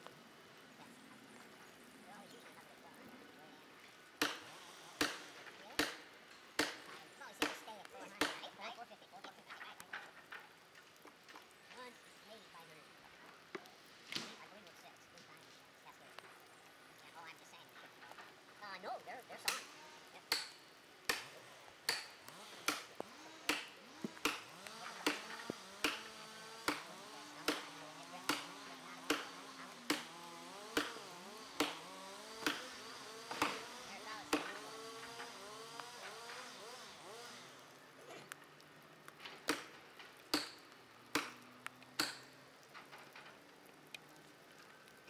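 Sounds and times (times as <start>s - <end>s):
axe striking wedge: 4.2s - 6.0s, 6.6s - 7.6s, 20.3s - 22.9s, 23.5s - 27.7s, 29.9s - 32.7s, 33.3s - 33.7s, 34.3s - 34.6s, 40.3s - 40.6s, 42.0s - 42.2s.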